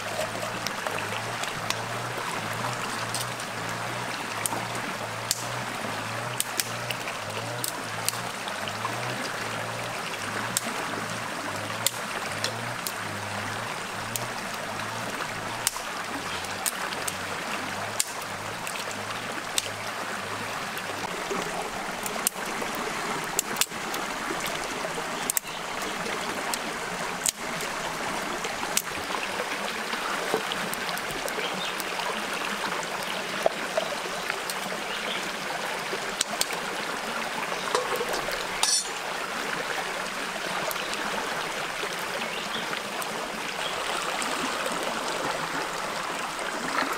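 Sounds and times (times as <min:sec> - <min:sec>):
small wood fire crackling: 0:00.0 - 0:10.9, 0:11.5 - 0:19.8, 0:20.8 - 0:39.0
rocky stream rushing: 0:00.0 - 0:46.9
dry twigs snapping: 0:02.9 - 0:03.4, 0:05.2 - 0:05.6.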